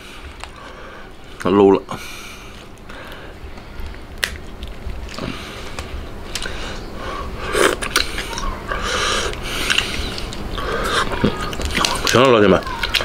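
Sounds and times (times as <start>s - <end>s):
wet sucking and smacking: 2.4s - 13.0s
crab shell cracking: 2.6s - 6.6s, 7.6s - 8.6s, 9.2s - 13.0s.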